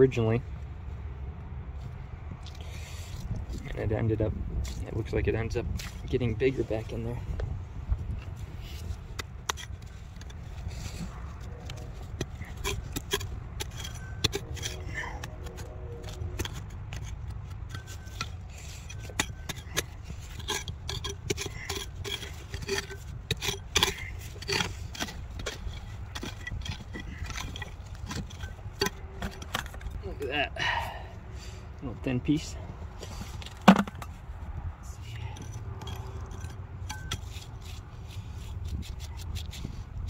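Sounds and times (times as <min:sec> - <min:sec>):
hand tools scraping rock: 0:08.3 - 0:30.9, 0:32.2 - 0:34.2, 0:34.9 - 0:40.0.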